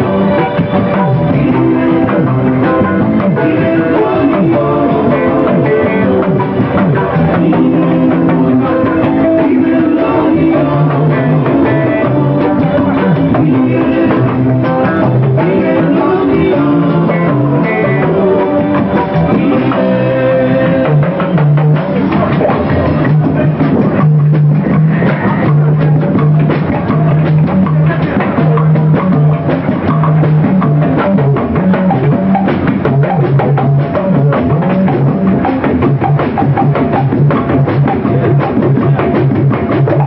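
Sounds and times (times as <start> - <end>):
man singing: 0.0 - 24.1, 25.0 - 29.5
bass guitar line: 0.0 - 40.0
drum kit: 0.0 - 40.0
electric guitars: 0.0 - 40.0.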